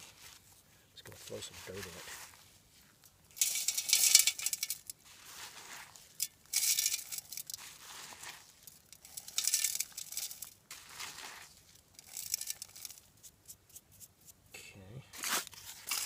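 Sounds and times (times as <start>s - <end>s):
dirt scraping and thrown: 0.0s - 14.4s, 15.1s - 16.0s.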